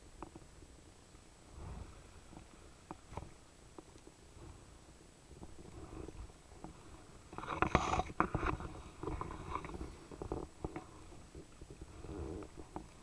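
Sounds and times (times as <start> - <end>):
small clicks and knocks: 0.2 - 0.5, 6.6 - 13.0.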